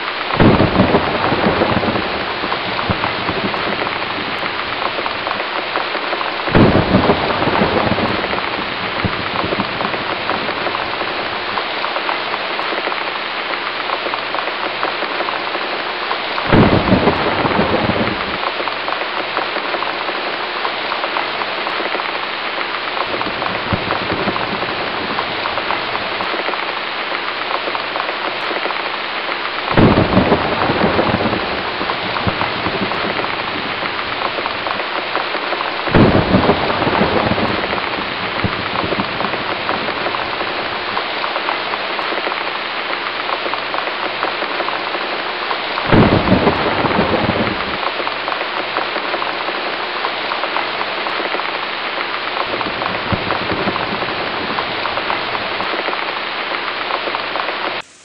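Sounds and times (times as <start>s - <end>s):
heavy rain: 0.0s - 58.0s
thunder rolling: 0.3s - 11.7s, 16.4s - 18.8s, 23.0s - 26.7s, 29.7s - 42.4s, 45.8s - 48.0s, 52.4s - 56.1s.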